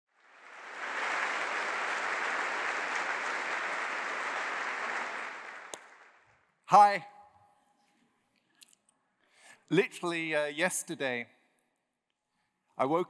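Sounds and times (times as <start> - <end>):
audience applauding: 0.1 - 6.3.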